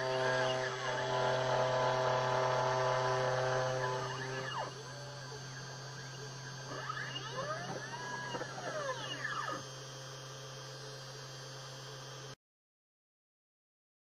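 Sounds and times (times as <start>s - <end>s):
stepper motors whining: 0.0s - 10.8s.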